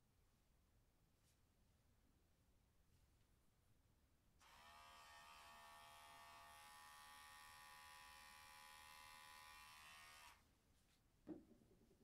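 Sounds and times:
electric hair clipper buzzing: 0:04.4 - 0:10.4.

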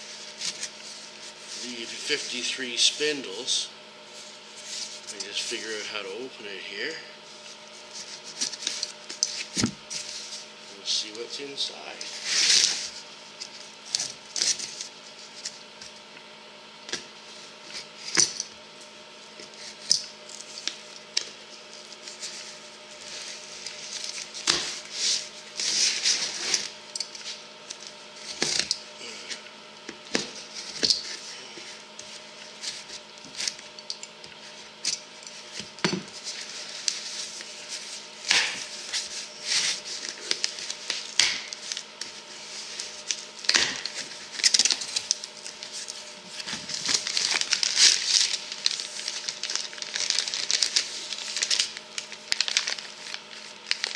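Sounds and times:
packaging rustling: 0:34.9 - 0:53.9.

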